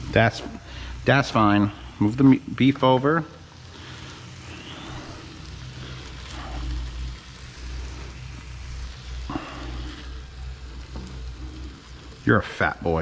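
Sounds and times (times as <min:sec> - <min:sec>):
low steady hum: 0:00.0 - 0:13.0
meat sizzling in a frying pan: 0:00.0 - 0:13.0.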